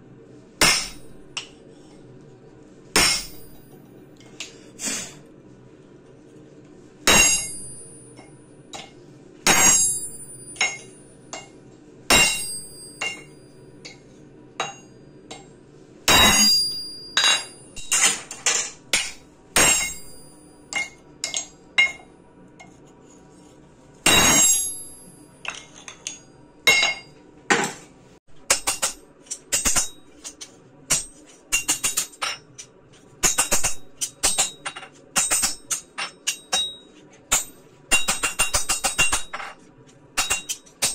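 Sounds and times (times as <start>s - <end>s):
hammer striking steel on anvil: 0.6s - 1.6s, 3.0s - 3.8s, 7.0s - 22.1s, 24.0s - 27.7s, 28.4s - 39.6s, 40.2s - 40.9s.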